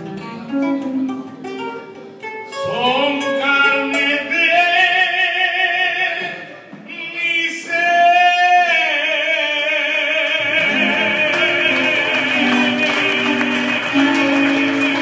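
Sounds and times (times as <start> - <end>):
guitar accompaniment: 0.0 - 4.7, 10.4 - 15.0
man singing with vibrato: 2.5 - 15.0.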